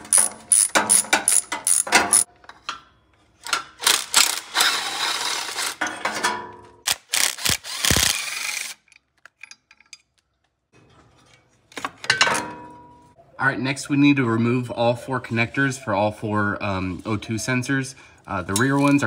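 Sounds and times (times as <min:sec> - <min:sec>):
cordless power tool whirring: 0:06.9 - 0:08.8.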